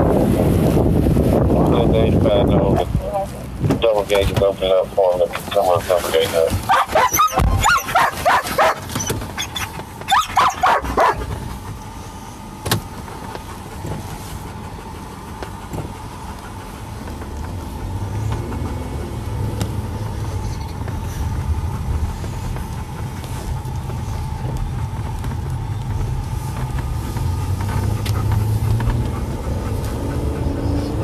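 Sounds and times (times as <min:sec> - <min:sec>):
car road and engine rumble: 0:00.0 - 0:31.0
dog yipping and whining: 0:06.6 - 0:11.3.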